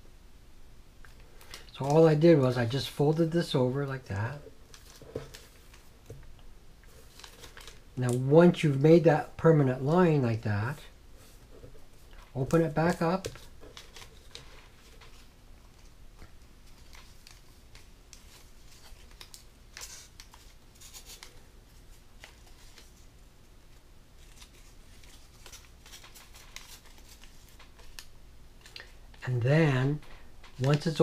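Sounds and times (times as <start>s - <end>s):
paper rustling and crinkling: 4.2s - 6.2s, 6.9s - 8.2s, 11.2s - 23.1s, 23.7s - 29.2s, 29.9s - 31.0s.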